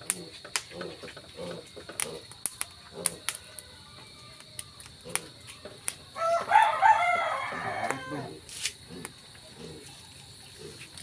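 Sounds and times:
rooster crowing: 6.1s - 8.4s.

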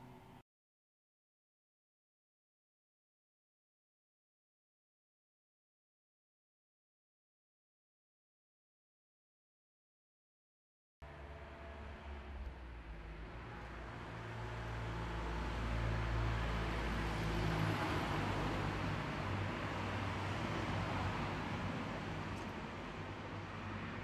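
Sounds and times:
car passing by: 11.1s - 24.0s.

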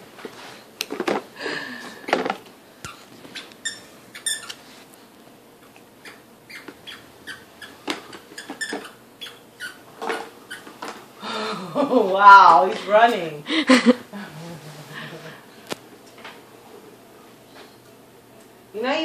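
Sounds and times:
toy walker squeaking on carpet: 3.3s - 4.6s, 6.0s - 9.8s.

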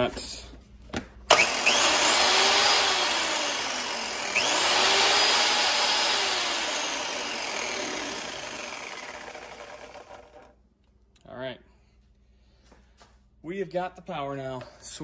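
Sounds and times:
electric chainsaw motor whining: 1.3s - 10.5s.

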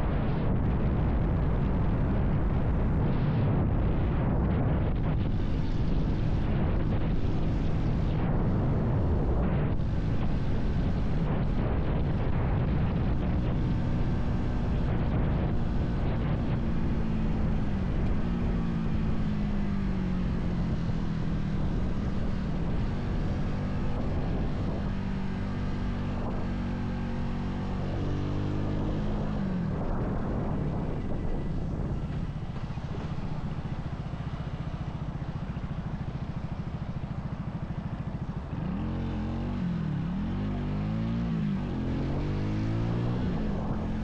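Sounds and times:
motorcycle engine decelerating: 0.0s - 44.0s.

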